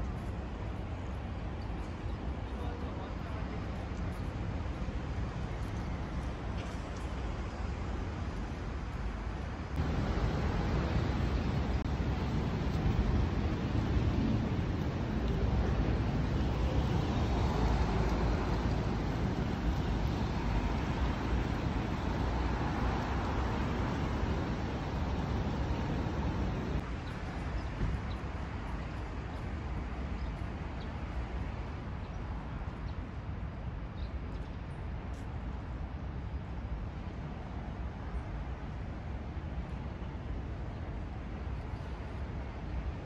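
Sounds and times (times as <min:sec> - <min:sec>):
road traffic rushing: 0:09.8 - 0:26.8.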